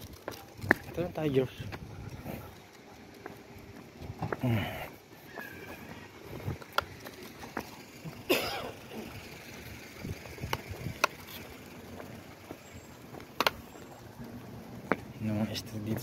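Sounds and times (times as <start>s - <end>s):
dog steps on pavement: 0.0s - 4.5s, 5.2s - 8.0s, 10.2s - 16.0s
dog coughing: 8.2s - 9.2s.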